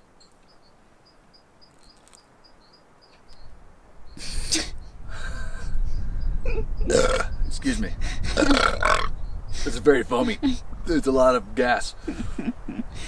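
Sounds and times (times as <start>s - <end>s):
faint insect chirps: 0.0s - 7.8s
wind rumble on microphone: 3.3s - 13.0s.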